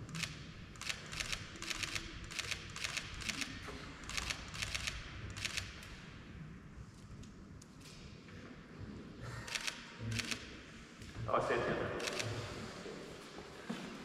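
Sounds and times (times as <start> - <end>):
camera shutters clicking: 0.1 - 5.9, 9.5 - 10.5, 12.0 - 12.4.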